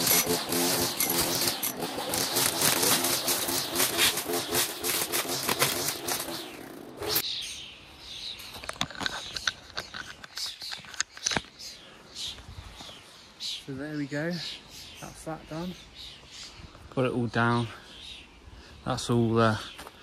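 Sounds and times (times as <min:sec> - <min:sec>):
string trimmer running: 0:00.0 - 0:07.2
trimmer line crackling through grass: 0:00.0 - 0:07.2.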